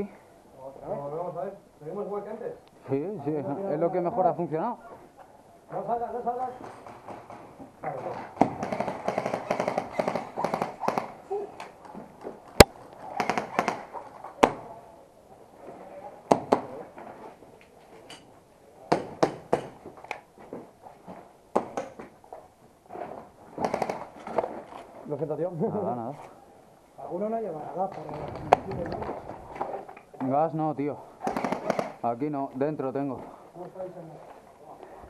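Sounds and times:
airsoft guns firing: 8.2 - 11.2, 13.0 - 14.7, 23.6 - 24.2, 31.2 - 32.0.

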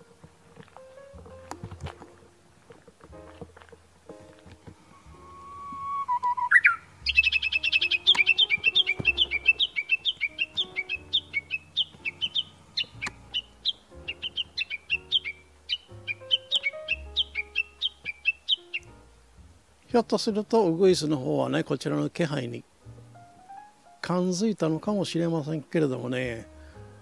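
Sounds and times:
bush warbler calling: 4.9 - 19.0.

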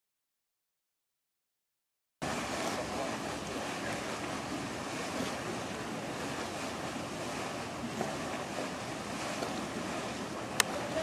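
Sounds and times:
water lapping: 2.2 - 11.0.

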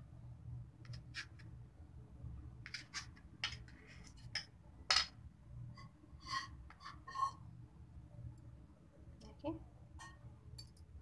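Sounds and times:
knife scraping on steel plate: 5.8 - 7.4.

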